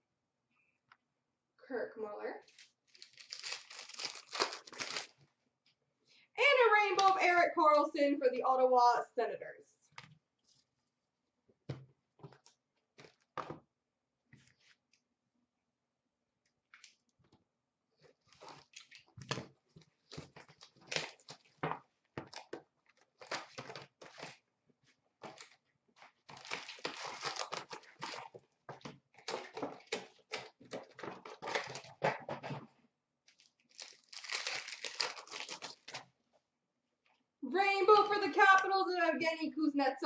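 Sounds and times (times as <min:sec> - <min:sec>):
card packs tearing open: 0:02.5 - 0:05.2, 0:20.0 - 0:21.6, 0:23.2 - 0:24.4, 0:26.3 - 0:28.3, 0:29.2 - 0:32.0, 0:33.3 - 0:36.1
wrappers crinkling: 0:02.5 - 0:05.2, 0:25.2 - 0:28.4, 0:33.3 - 0:36.1.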